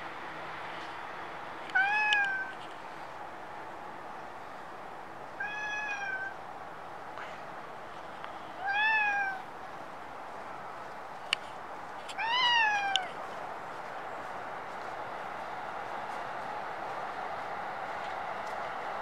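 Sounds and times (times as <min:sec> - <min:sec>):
steady background noise: 0:00.0 - 0:19.0
cat meowing: 0:01.7 - 0:02.5, 0:05.4 - 0:06.4, 0:08.6 - 0:09.4, 0:12.1 - 0:13.1.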